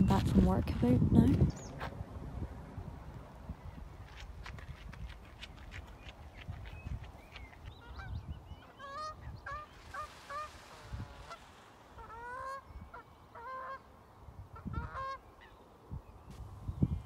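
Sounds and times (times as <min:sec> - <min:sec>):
geese honking: 0:07.8 - 0:15.5.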